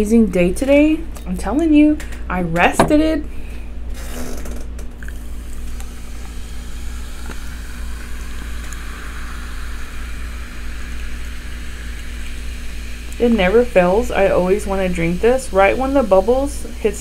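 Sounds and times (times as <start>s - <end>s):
low hum: 0.0s - 17.0s
cola pouring and fizzing: 5.0s - 16.9s.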